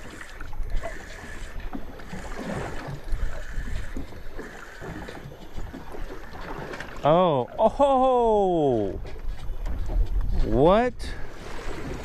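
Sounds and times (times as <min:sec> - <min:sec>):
water sloshing against hull: 0:00.0 - 0:12.0
wind buffeting microphone: 0:08.2 - 0:12.0.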